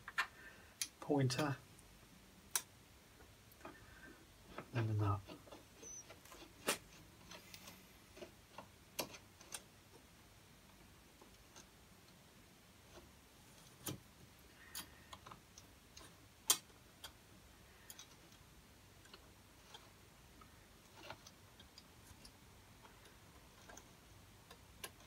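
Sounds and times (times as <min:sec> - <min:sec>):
small metallic clicks and taps: 0:19.0 - 0:25.0.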